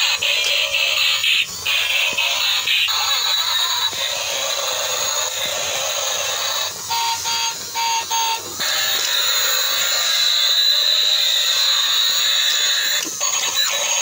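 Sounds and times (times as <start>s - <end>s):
toy car motor whirring: 0.0s - 14.0s
high electronic tone: 5.0s - 11.0s
short electronic beeps: 6.9s - 8.4s.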